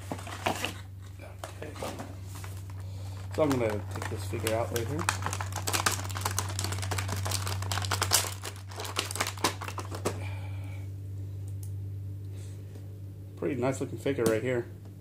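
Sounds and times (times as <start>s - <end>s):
plastic packaging crinkling: 0.0s - 10.3s
low steady hum: 0.0s - 15.0s.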